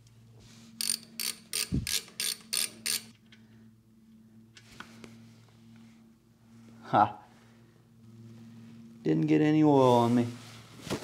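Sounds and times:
ratchet clicking: 0.8s - 3.2s.

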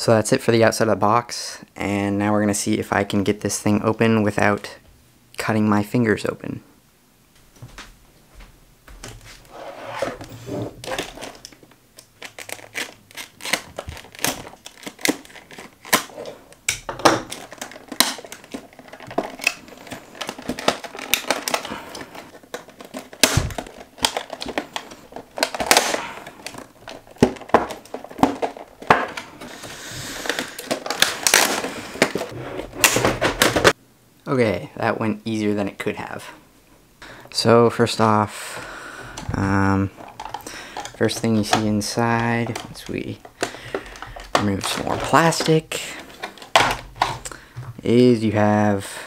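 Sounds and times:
plastic packaging crinkling and snapping: 10.2s - 33.8s, 38.0s - 47.8s.

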